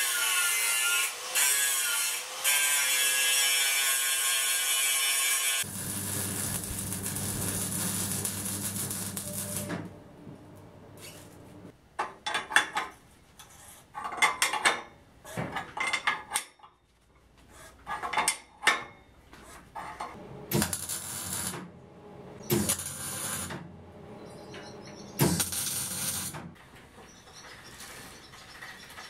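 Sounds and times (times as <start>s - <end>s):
electric welding crackle: 0.0s - 10.0s, 20.5s - 21.7s, 22.4s - 23.6s, 25.2s - 26.4s.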